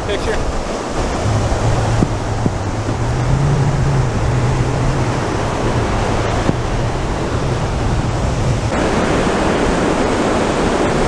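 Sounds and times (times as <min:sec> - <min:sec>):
breaking surf: 0:00.0 - 0:11.0
wind buffeting microphone: 0:00.0 - 0:11.0.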